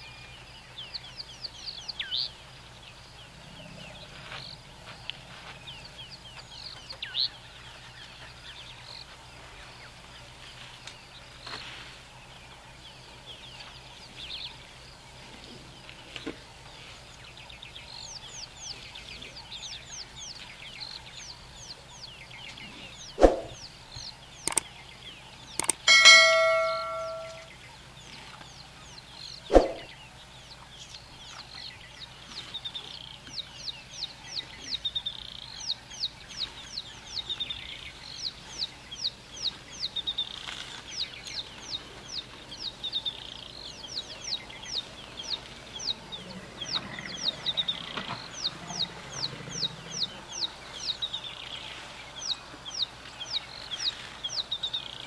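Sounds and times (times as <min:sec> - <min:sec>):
birds chirping: 0:00.0 - 0:55.0
metallic ding: 0:25.6 - 0:27.5.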